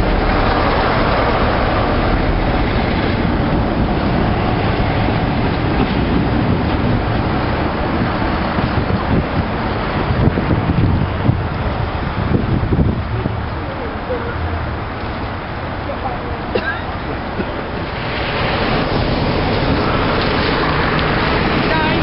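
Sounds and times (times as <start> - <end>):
approaching locomotive: 0.0 - 22.0
diesel locomotive engine: 0.0 - 22.0.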